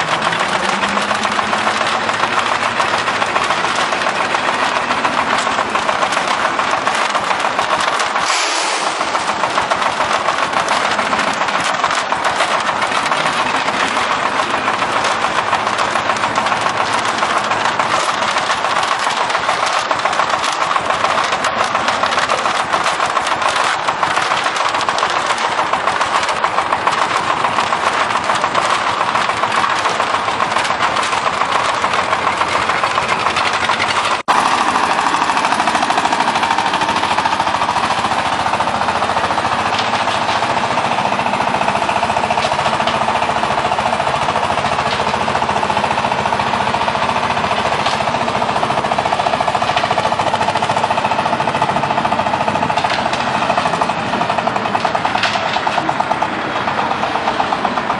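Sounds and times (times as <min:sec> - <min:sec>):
concrete mixer drum rattling: 0:00.0 - 0:57.9
mixer hum: 0:00.0 - 0:57.9.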